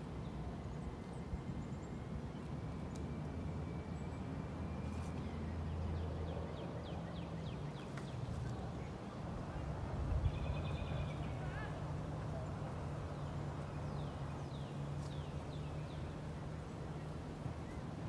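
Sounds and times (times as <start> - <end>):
small birds chirping: 3.8 - 11.8, 12.4 - 18.0.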